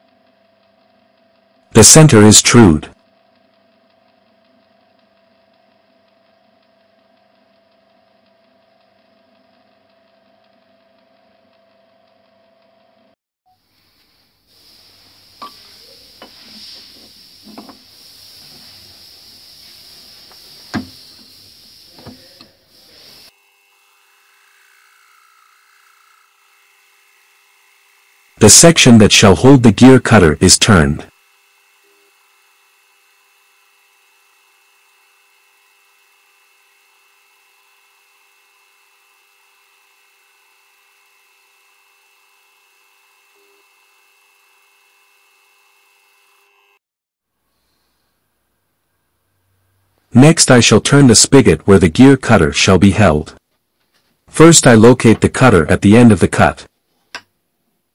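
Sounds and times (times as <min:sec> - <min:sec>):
steady hiss: 0:13.6 - 0:23.4.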